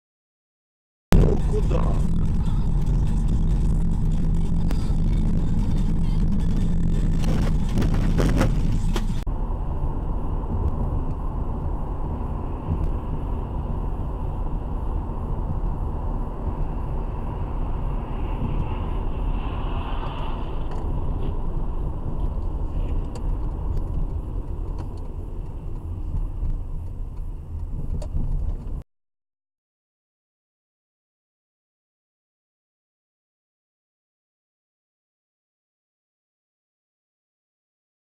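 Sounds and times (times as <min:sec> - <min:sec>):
car road noise from inside cabin: 0:01.1 - 0:28.8
passing car hiss: 0:17.2 - 0:21.2.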